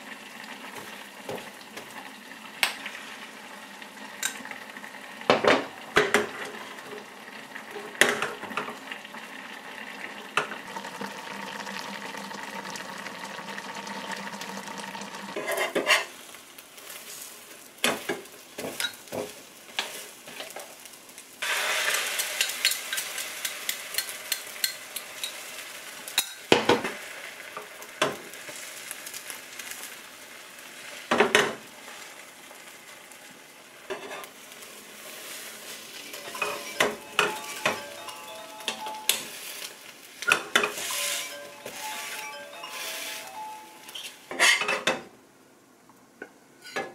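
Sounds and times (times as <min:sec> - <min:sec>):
egg sizzling in frying pan: 0:00.0 - 0:44.6
utensils tapping on pan: 0:04.2 - 0:04.5, 0:17.8 - 0:20.7, 0:21.8 - 0:27.0, 0:35.9 - 0:45.1.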